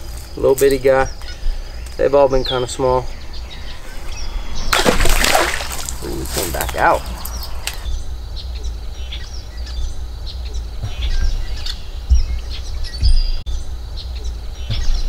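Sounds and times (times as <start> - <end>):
small birds chirping: 0.0 - 15.0
dull thumps: 4.6 - 7.9.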